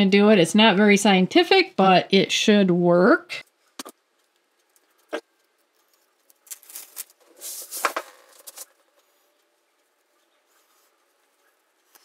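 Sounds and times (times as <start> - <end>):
paper crinkling and rustling: 4.2 - 12.0.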